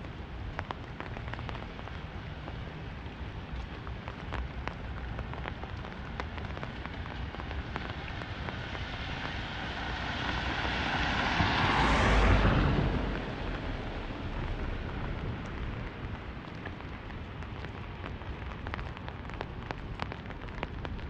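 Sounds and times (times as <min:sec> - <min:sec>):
raindrops pattering on umbrella: 0:00.0 - 0:21.0
steady rain hiss: 0:00.0 - 0:21.0
tyres swishing on wet road: 0:00.0 - 0:21.0.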